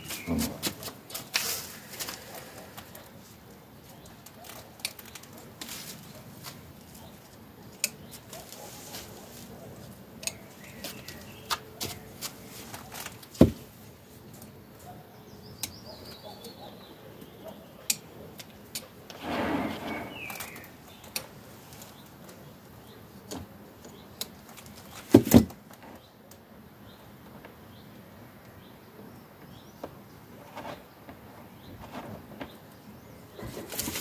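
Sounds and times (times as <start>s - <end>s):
birds chirping: 0.0s - 5.4s, 6.0s - 13.2s, 14.2s - 25.1s
rustle of handling: 0.0s - 14.6s, 33.4s - 34.0s.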